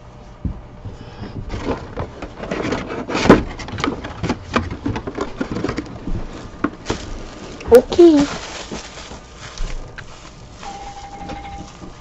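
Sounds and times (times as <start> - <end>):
cardboard box rustles and knocks: 1.2 - 7.6
plastic wrap crinkling: 4.9 - 12.0.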